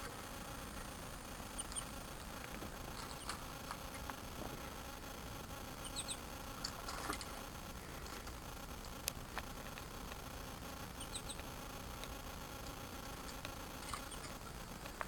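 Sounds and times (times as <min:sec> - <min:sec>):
steady low hiss: 0:00.0 - 0:15.0
faint high bird chirps: 0:01.5 - 0:01.9, 0:05.8 - 0:06.3, 0:10.9 - 0:11.4.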